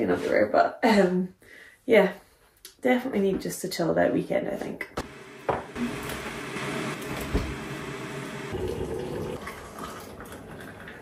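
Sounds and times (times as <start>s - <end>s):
water pouring into mug: 8.5s - 11.0s.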